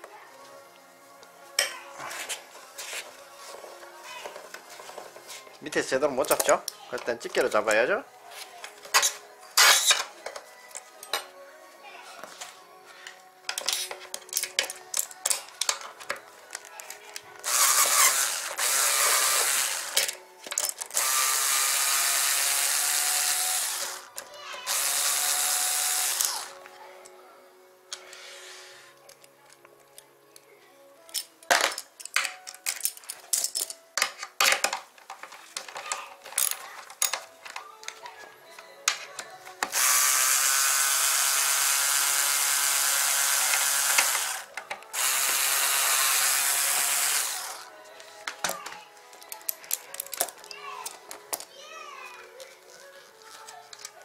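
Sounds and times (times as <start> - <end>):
electric screwdriver running: 17.4 - 20.1, 20.9 - 24.1, 24.7 - 26.6, 39.7 - 47.7.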